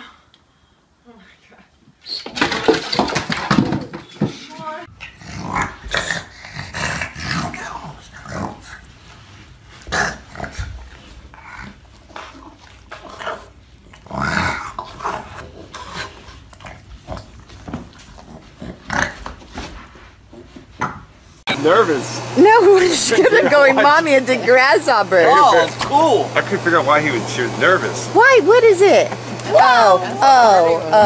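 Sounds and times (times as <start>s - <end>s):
dog grunting and growling: 4.9s - 8.8s, 9.8s - 17.4s.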